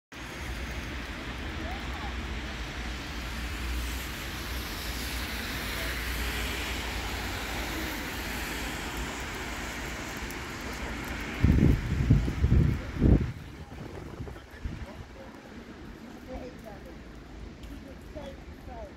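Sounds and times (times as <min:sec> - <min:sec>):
traffic on wet roads: 0:00.2 - 0:18.9
wind on microphone: 0:10.8 - 0:15.5.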